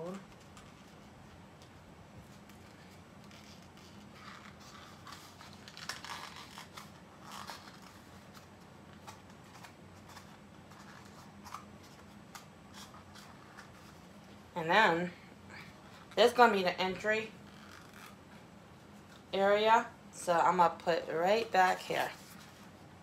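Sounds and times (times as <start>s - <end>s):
small scratches and clicks: 0.0s - 14.0s, 17.4s - 18.4s
cardboard rustling and crinkling: 0.2s - 14.4s, 21.5s - 23.0s.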